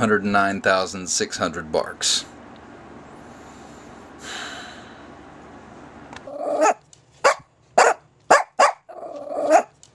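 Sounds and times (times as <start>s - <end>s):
small dog barking: 6.3s - 9.8s.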